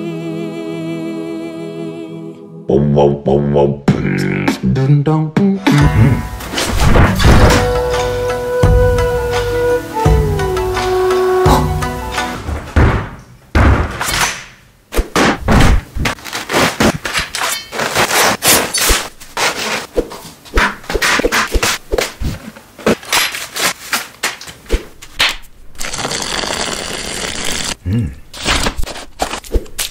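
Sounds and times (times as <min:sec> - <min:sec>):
rapid knocks and thuds: 0:12.4 - 0:14.0, 0:15.1 - 0:16.2.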